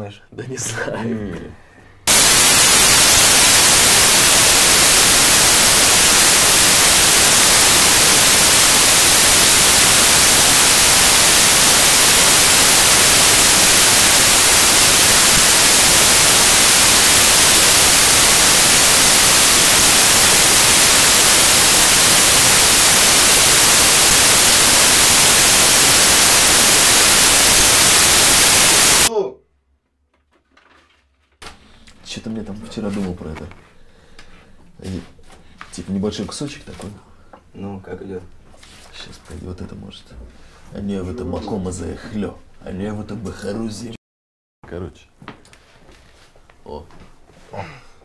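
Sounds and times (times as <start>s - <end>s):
loud static hiss: 2.1s - 29.1s.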